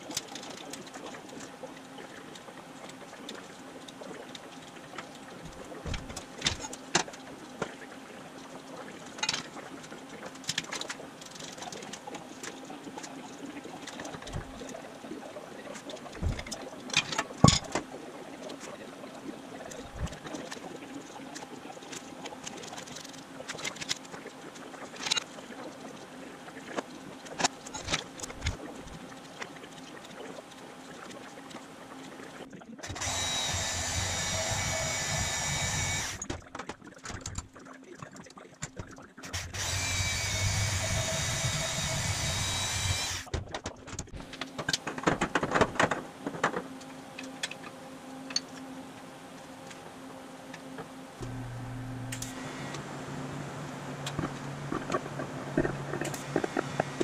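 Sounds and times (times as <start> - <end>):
steady low hum: 45.0 - 57.0.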